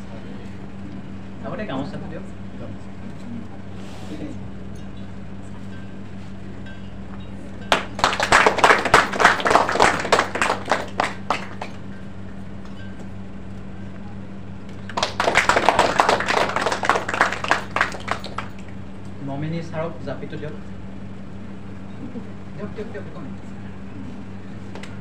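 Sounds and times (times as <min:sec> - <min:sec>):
crowd applauding: 0:07.7 - 0:11.9, 0:14.7 - 0:18.9.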